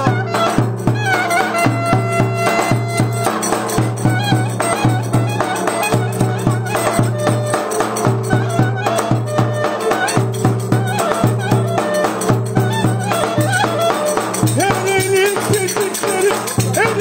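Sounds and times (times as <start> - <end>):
wavering clarinet melody: 0.0 - 17.0.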